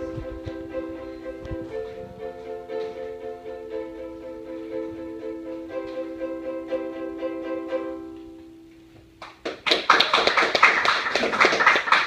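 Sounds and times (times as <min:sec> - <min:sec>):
ukulele strumming: 0:00.0 - 0:09.1
audience applause: 0:09.2 - 0:12.0.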